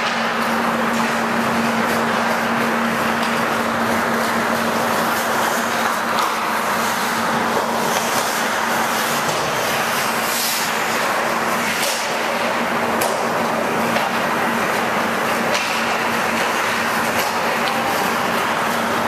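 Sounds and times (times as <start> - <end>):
skate blades scraping on ice: 3.0 - 12.5.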